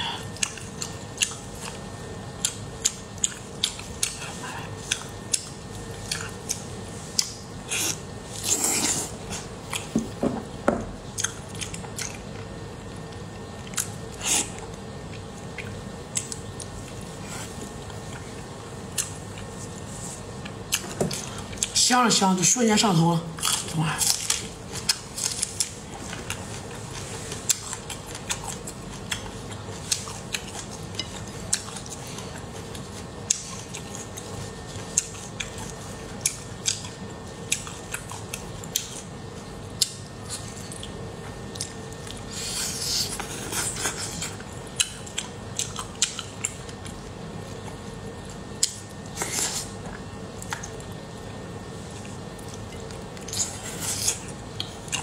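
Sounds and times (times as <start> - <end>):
person chewing with wet mouth clicks: 0.4 - 1.8, 2.4 - 4.2, 4.8 - 8.0, 13.6 - 17.0, 27.4 - 34.2, 34.8 - 39.1, 39.8 - 42.2, 44.2 - 47.0, 48.6 - 48.9, 49.9 - 51.0.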